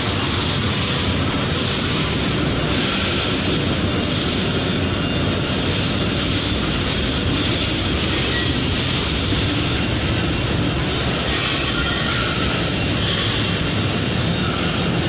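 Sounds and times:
industrial furnace roaring: 0.0 - 15.0.

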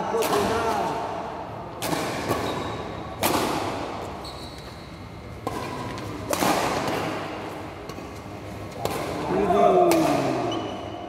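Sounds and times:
rackets striking shuttlecock: 1.8 - 4.1, 5.3 - 10.5
brief high squeak: 4.2 - 4.8.

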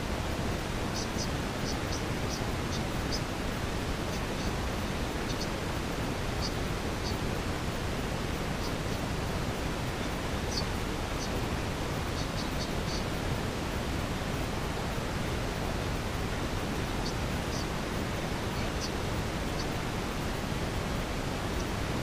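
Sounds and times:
steady rushing noise: 0.0 - 22.0
faint high chirps: 5.2 - 5.6.

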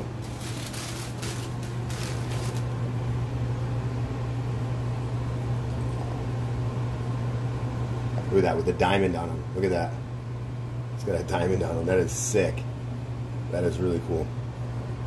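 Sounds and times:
tissue paper rustling: 0.2 - 2.7.

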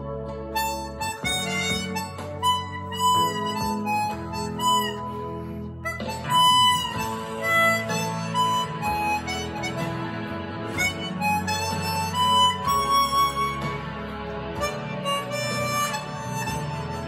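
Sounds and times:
harmonica playing slow melody: 0.0 - 17.0.

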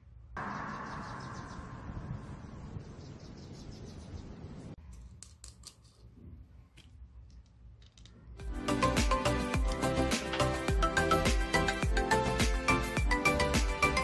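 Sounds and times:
music: 8.4 - 14.0.

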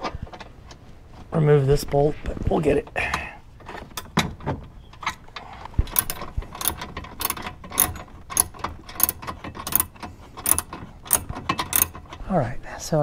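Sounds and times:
socket ratchet clicking: 5.9 - 12.1.

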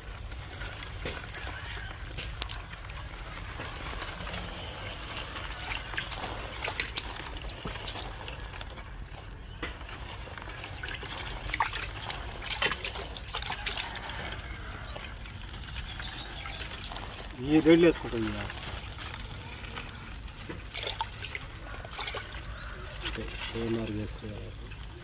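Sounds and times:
water trickling and splashing: 0.0 - 25.0.

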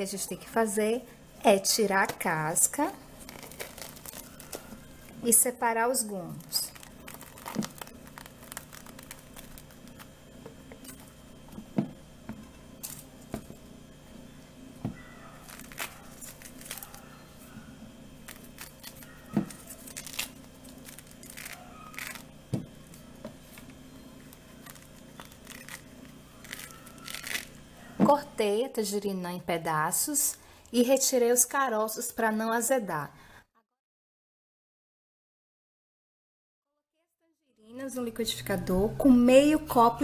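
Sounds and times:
low steady hum: 0.0 - 33.1, 37.6 - 40.0
tearing of fruit peel: 3.2 - 4.9, 6.4 - 10.2, 15.2 - 17.6, 18.2 - 27.6.

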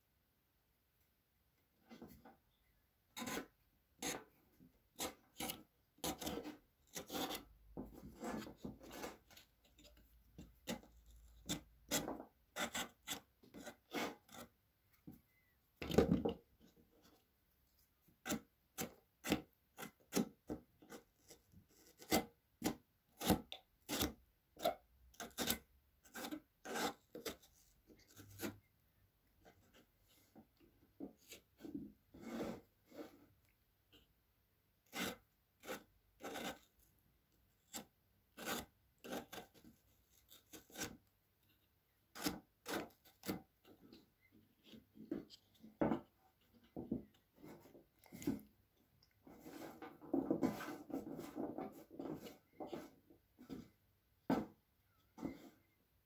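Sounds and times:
potato rasping across slicer blade: 3.2 - 4.2, 5.0 - 7.5, 10.6 - 14.5, 20.9 - 28.6, 34.8 - 36.8, 37.6 - 41.1.

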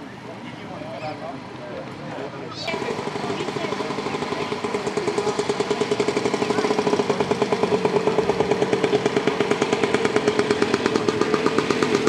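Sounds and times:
motorcycle engine idling: 2.7 - 12.0.

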